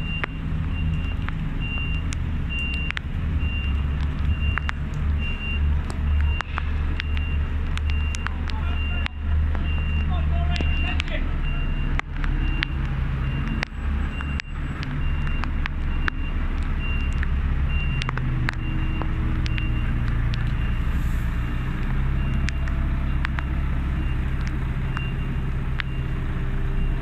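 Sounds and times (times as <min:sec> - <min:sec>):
reversing alarm beeps: 0:00.0 - 0:06.4, 0:07.0 - 0:27.0
sharp clicks: 0:00.1 - 0:20.8.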